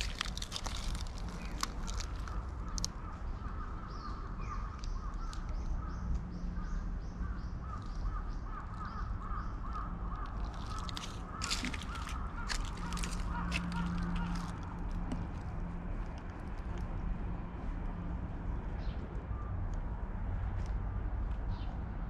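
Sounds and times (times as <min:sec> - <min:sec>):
crackling rustles: 0:00.0 - 0:03.6, 0:07.7 - 0:17.0
birds calling: 0:00.0 - 0:15.2.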